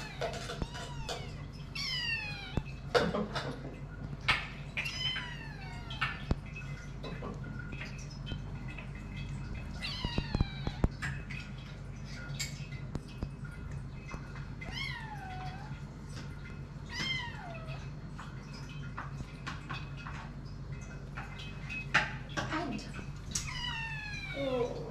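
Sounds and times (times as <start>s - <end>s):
kittens meowing: 0.0s - 2.8s, 4.8s - 6.3s, 9.7s - 11.0s, 23.4s - 24.9s.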